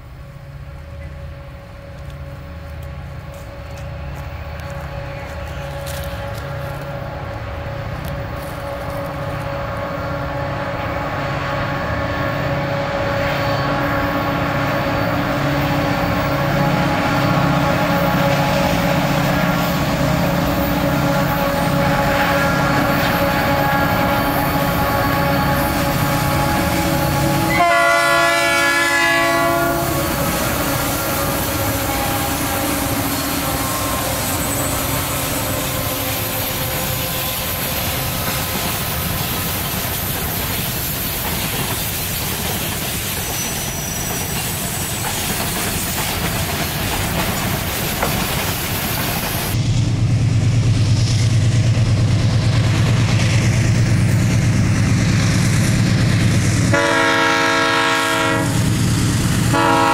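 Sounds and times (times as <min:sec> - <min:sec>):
diesel locomotive engine drone: 0:00.0 - 0:59.9
freight cars rolling on rails: 0:00.0 - 0:59.9
locomotive air horn: 0:00.8 - 0:39.8, 0:56.7 - 0:58.8, 0:59.5 - 0:59.9.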